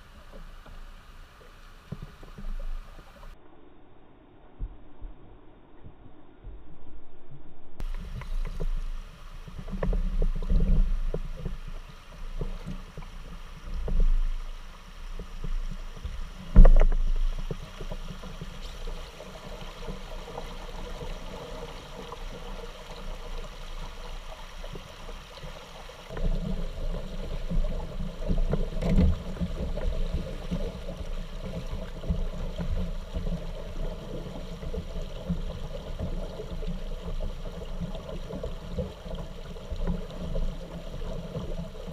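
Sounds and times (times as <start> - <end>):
water splashing around kayak: 0.0 - 3.4, 7.8 - 41.9.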